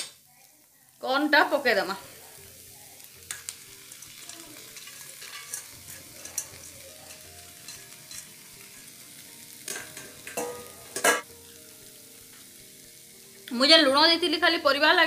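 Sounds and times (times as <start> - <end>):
vegetables sizzling in a pan: 0.0 - 15.0
corn kernels tapping on metal: 3.2 - 8.9, 9.6 - 11.3
colander knocking: 9.7 - 11.3.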